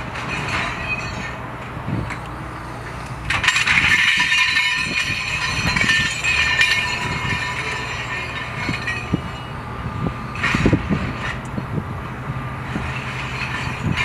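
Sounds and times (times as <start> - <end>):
scrap metal clattering onto pile: 0.0 - 1.4, 3.3 - 9.5, 10.3 - 11.5, 12.6 - 14.0
diesel engine running: 0.0 - 14.0.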